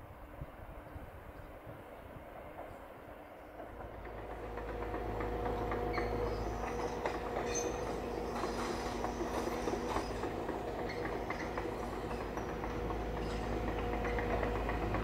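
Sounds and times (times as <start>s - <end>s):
train rumbling: 0.0s - 15.0s
wheels clicking over track: 3.6s - 15.0s.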